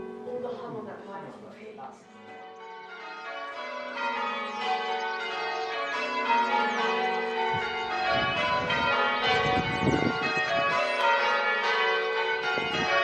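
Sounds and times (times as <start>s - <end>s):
church bells ringing: 0.0s - 13.0s.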